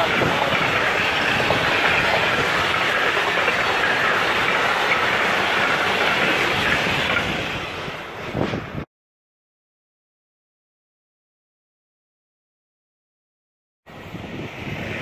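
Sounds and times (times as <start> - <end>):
train wheels rolling on rails: 0.0 - 8.9, 13.9 - 15.0.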